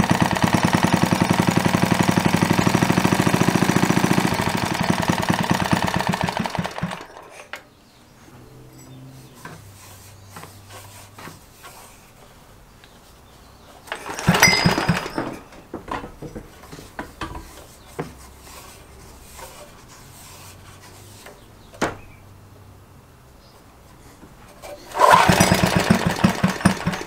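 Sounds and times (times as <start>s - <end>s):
engine chuffing turning over: 0.0s - 7.3s, 13.9s - 15.4s, 24.6s - 27.0s
starter rope rewinding clicks: 13.9s - 15.3s, 24.9s - 27.0s.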